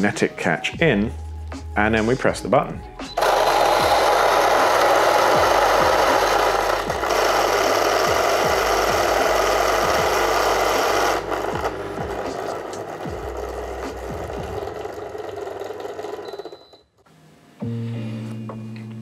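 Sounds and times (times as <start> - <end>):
grinder motor spinning: 3.2 - 16.7
coffee grinder grinding beans: 3.2 - 16.8.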